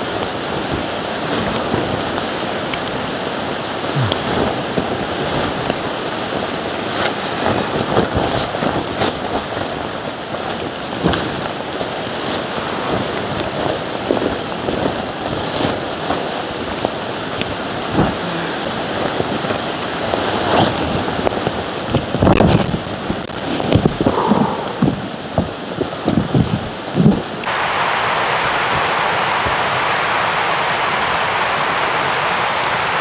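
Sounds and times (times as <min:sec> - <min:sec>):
heavy rain falling: 0:00.0 - 0:33.0.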